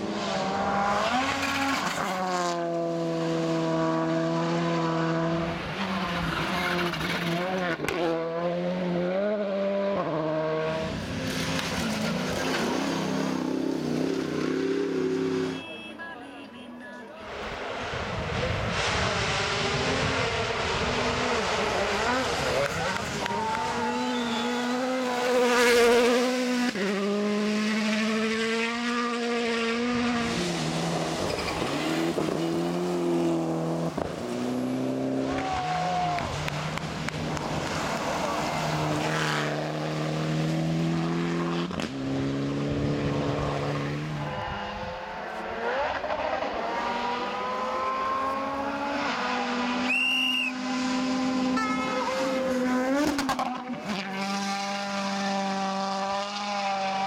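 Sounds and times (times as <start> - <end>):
rally car engine revving: 0.0 - 15.6, 17.2 - 57.0.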